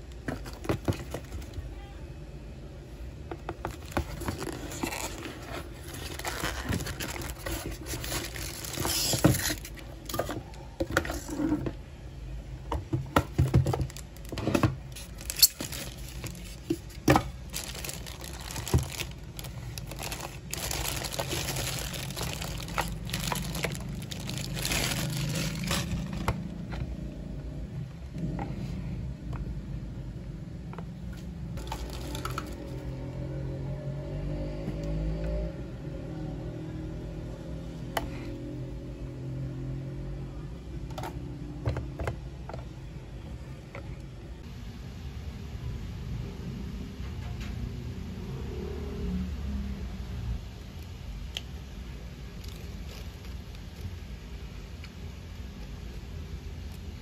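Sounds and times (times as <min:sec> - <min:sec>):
plastic wrapping crinkling: 0:03.6 - 0:10.5, 0:13.5 - 0:26.6, 0:31.6 - 0:32.8.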